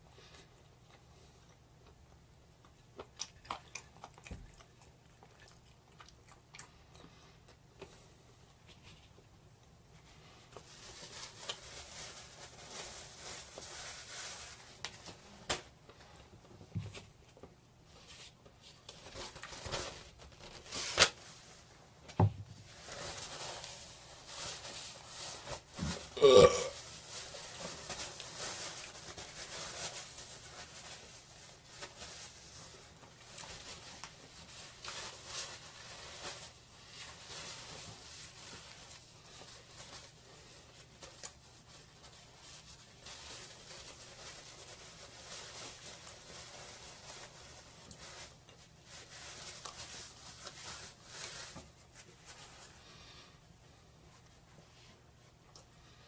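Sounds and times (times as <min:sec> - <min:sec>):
quiet eating sounds: 0:00.1 - 0:09.8
man burping loudly: 0:26.2 - 0:26.8.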